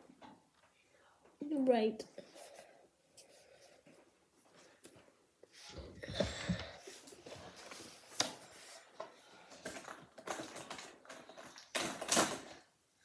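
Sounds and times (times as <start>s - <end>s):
rustling and scraping: 2.2s - 12.6s.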